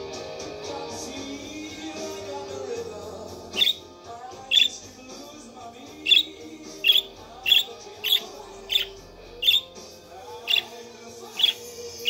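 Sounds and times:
soft music: 0:00.0 - 0:12.0
budgerigar chirping: 0:03.5 - 0:03.9, 0:04.5 - 0:04.8, 0:06.0 - 0:09.8, 0:10.4 - 0:12.0.

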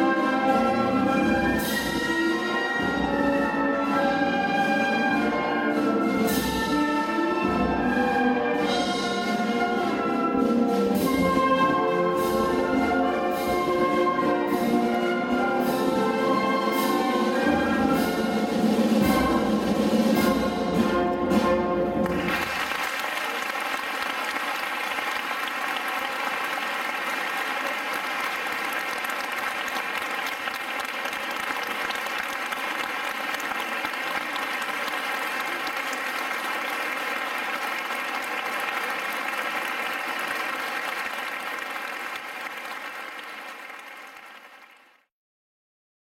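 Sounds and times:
audience applauding: 0:22.0 - 0:45.1.

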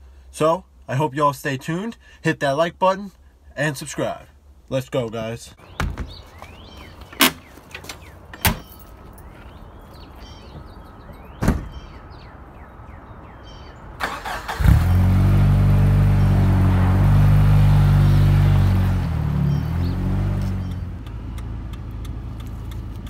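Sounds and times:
car engine starting and idling: 0:14.0 - 0:23.0.

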